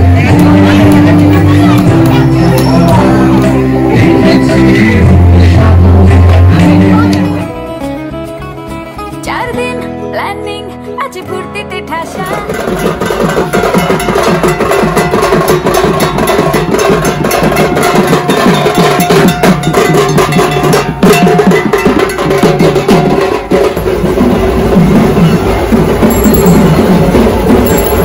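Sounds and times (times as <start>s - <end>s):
metal percussion clanging: 0.0s - 3.7s, 12.1s - 28.0s
barrel drums beating: 0.0s - 6.6s, 12.1s - 28.0s.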